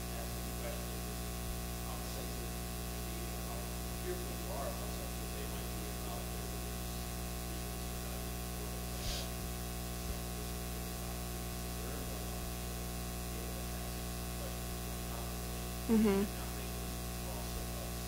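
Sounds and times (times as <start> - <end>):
steady hiss: 0.0 - 15.6
low electrical hum: 0.0 - 18.0.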